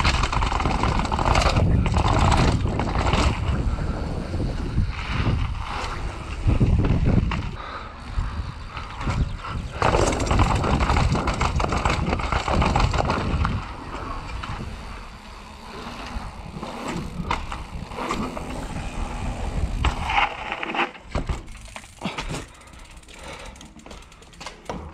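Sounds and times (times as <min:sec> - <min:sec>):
wind rumble on microphone: 0:00.0 - 0:20.5
bike knocking and rattling: 0:00.0 - 0:24.9
bike tyres on gravel: 0:00.0 - 0:24.9.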